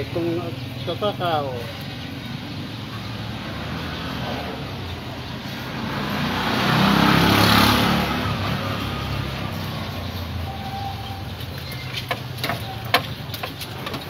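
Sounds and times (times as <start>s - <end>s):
vehicle engine humming: 0.0s - 14.0s.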